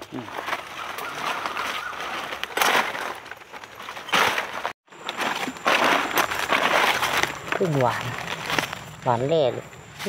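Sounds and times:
dry leaves crunching and rustling: 0:00.0 - 0:10.0.

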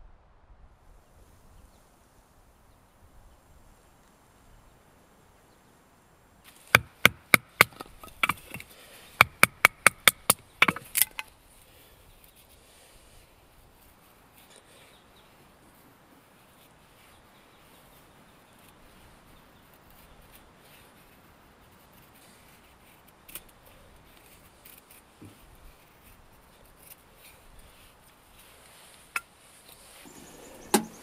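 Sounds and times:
knife batoning through wood: 0:06.5 - 0:11.3.

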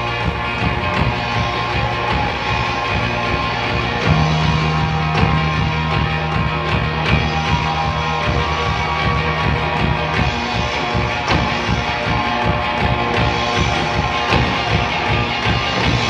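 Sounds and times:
drums: 0:00.0 - 0:16.0
electric guitars: 0:00.0 - 0:16.0.

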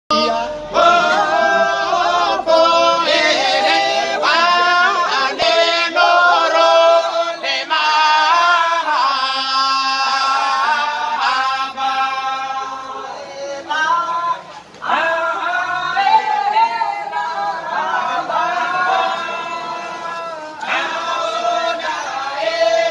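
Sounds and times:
group singing unaccompanied: 0:00.1 - 0:22.9.

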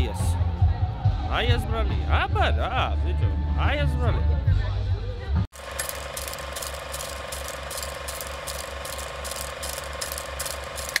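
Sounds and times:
film projector clatter: 0:05.5 - 0:11.0.

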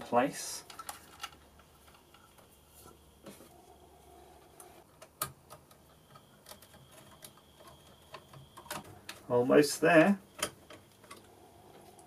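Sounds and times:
cables and connectors clicking: 0:04.6 - 0:09.3, 0:10.3 - 0:12.0.

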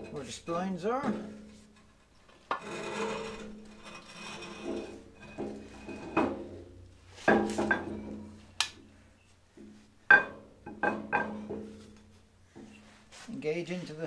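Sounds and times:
metal clunks and knocks: 0:01.0 - 0:08.5, 0:09.5 - 0:11.9.

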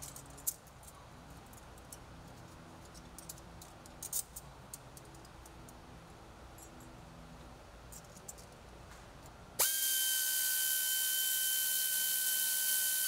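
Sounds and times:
power tool whining: 0:09.6 - 0:13.0.

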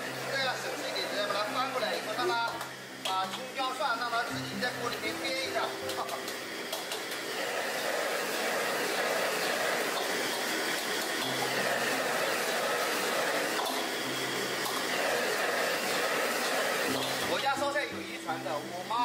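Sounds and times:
food frying in hot oil: 0:00.0 - 0:07.6, 0:08.2 - 0:14.9, 0:15.8 - 0:19.0
burner flame: 0:04.6 - 0:17.6.

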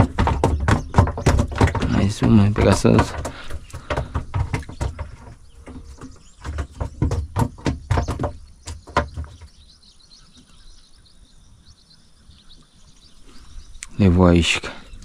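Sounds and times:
fish flopping in a boat: 0:00.0 - 0:08.8
faint chirping: 0:03.2 - 0:15.0.

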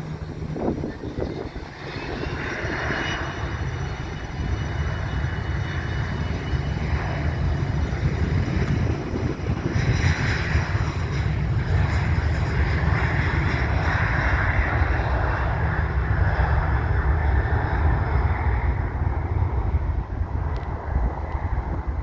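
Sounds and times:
airliner engines roaring: 0:00.0 - 0:22.0.

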